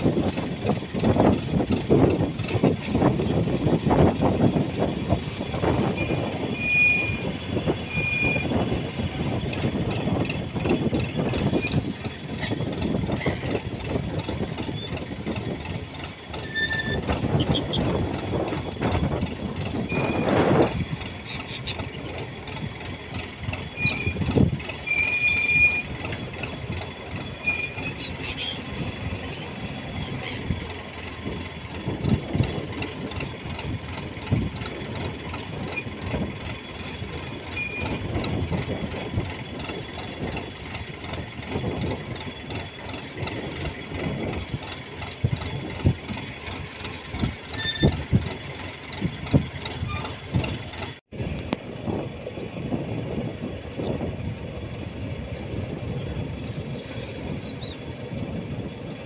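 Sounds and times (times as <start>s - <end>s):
boat engine running: 0.0s - 59.0s
short high squeaks: 5.7s - 7.3s, 7.9s - 8.5s, 16.4s - 18.0s, 19.9s - 20.4s, 23.7s - 24.2s, 24.8s - 25.9s, 27.1s - 30.5s, 37.5s - 38.1s, 47.5s - 48.2s, 49.8s - 50.9s
waves slapping against hull: 9.4s - 51.0s.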